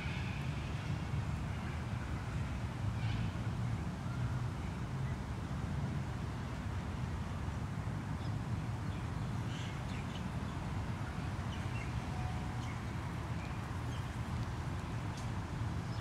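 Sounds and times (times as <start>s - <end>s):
distant city traffic rumble: 0.0s - 16.0s.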